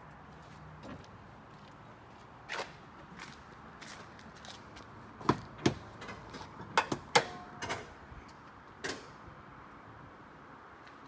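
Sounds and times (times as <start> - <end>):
car hood latch clicks and knocks: 5.2 - 7.9.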